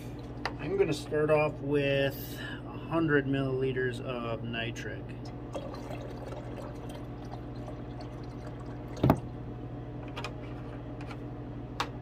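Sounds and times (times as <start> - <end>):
steady low hum: 0.0 - 12.0
liquid trickling into beaker: 5.3 - 9.4.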